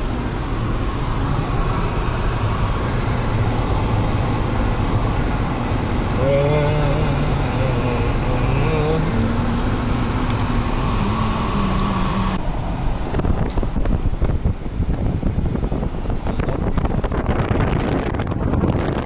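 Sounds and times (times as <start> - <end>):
car engine hum inside cabin: 0.0 - 19.0
wind buffeting microphone: 9.6 - 19.0.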